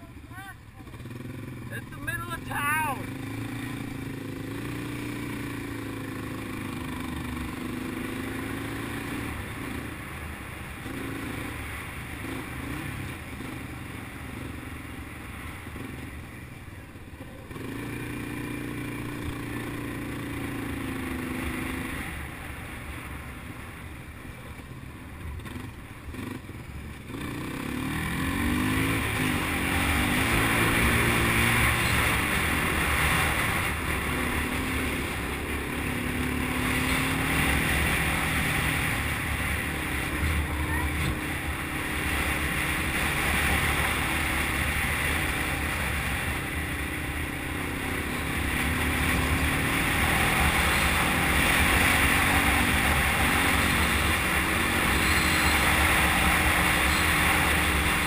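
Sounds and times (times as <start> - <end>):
atv engine running: 0.0 - 58.0
broad rushing noise: 27.5 - 58.0.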